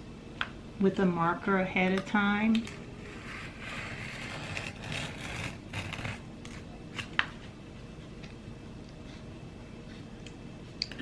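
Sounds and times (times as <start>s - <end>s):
craft knife cutting foam board: 3.0s - 7.1s.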